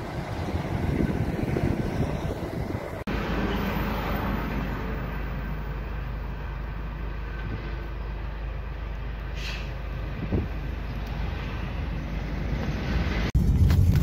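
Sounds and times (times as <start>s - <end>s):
car road and engine noise: 0.0s - 14.0s
brief hiss: 9.4s - 9.8s.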